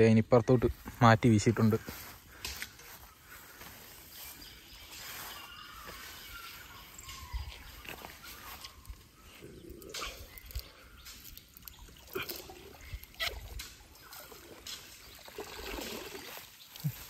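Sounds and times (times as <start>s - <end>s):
short water splashes: 10.4s - 17.0s
water trickling off a net: 10.4s - 17.0s.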